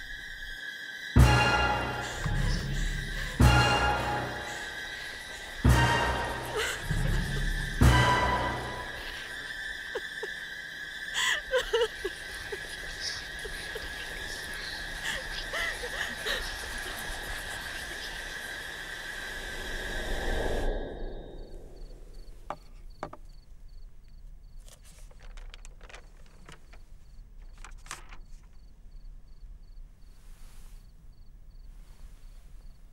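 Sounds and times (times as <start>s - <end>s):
night insects chirring: 0.0s - 32.9s
low swell: 16.5s - 22.4s.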